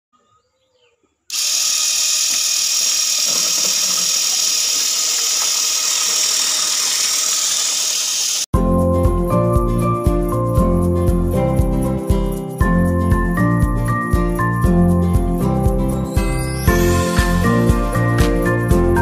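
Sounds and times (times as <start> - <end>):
small electric motor running: 1.3 - 8.5.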